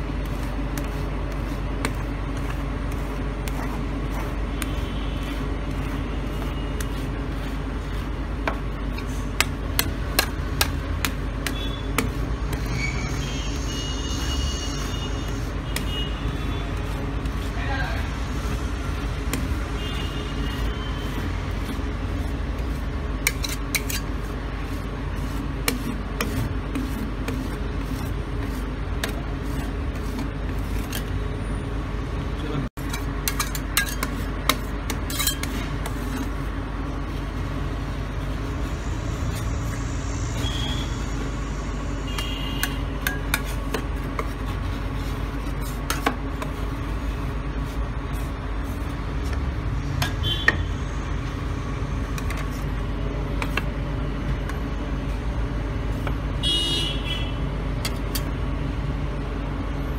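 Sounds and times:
metal spatulas scraping a cold pan: 0:19.3 - 0:31.2, 0:32.8 - 0:36.4, 0:42.1 - 0:48.9.

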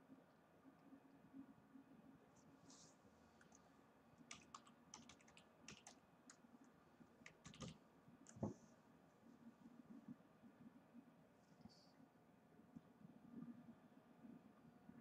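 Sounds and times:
faint clicks and taps: 0:04.3 - 0:08.6.

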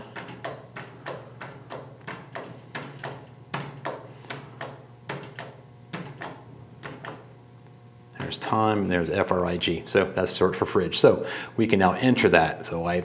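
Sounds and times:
vending machine button clicks: 0:00.0 - 0:07.3
steady low hum: 0:00.0 - 0:13.0.

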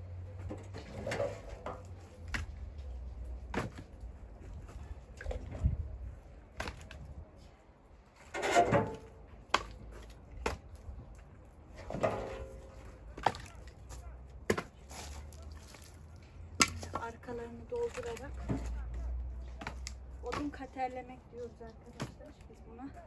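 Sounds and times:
wooden logs knocking: 0:19.6 - 0:20.7.

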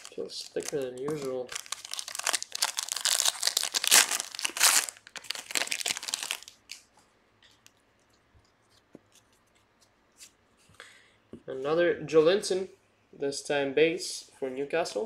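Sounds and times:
foil wrapper tearing and crinkling: 0:00.0 - 0:06.9.

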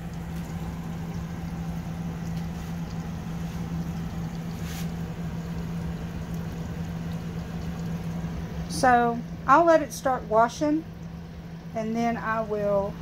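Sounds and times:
water pouring into tub: 0:00.0 - 0:09.0
steady low hum: 0:00.0 - 0:13.0.

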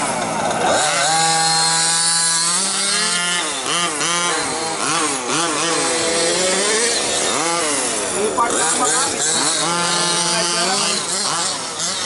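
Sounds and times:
small two-stroke engines revving: 0:00.0 - 0:12.0.

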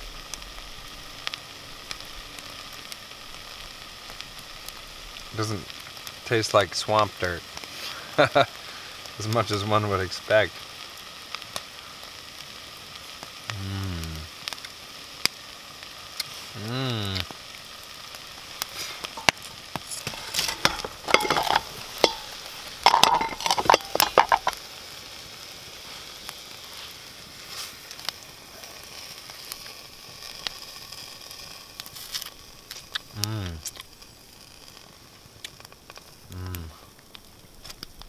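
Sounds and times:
food sizzling over campfire: 0:00.0 - 0:38.0
person humming mmm: 0:13.5 - 0:14.3, 0:16.6 - 0:17.2, 0:36.3 - 0:36.8
utensil clinking in pot: 0:19.2 - 0:24.6.

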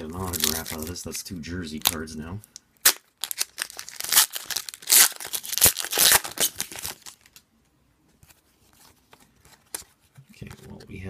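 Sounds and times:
card pack wrapper tearing: 0:00.0 - 0:01.0, 0:01.7 - 0:02.1, 0:02.8 - 0:07.4
cards being handled: 0:08.2 - 0:10.8.

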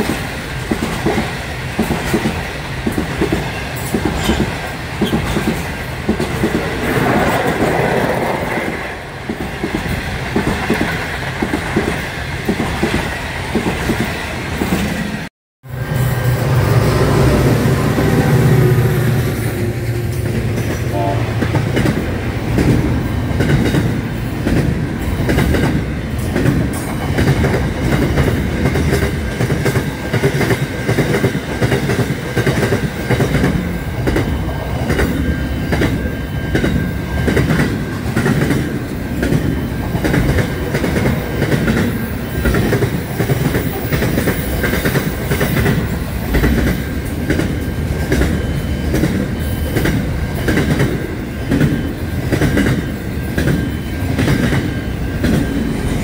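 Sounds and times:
freight train rumbling past: 0:00.0 - 0:56.0.

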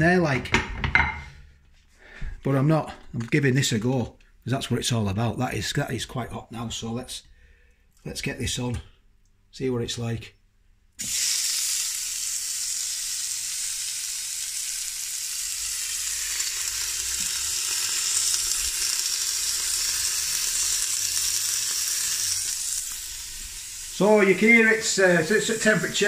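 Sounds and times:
steak sizzling: 0:11.0 - 0:26.0.

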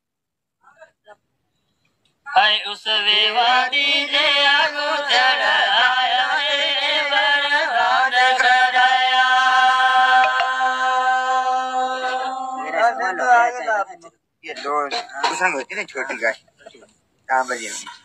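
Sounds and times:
man singing unaccompanied: 0:02.3 - 0:13.7.

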